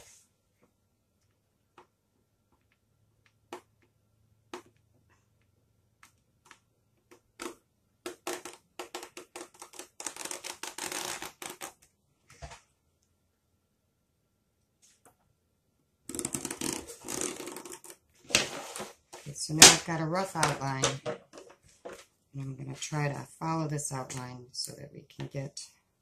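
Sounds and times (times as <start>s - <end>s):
marker scratching and clicking on plastic: 6.0s - 11.9s, 16.1s - 18.9s.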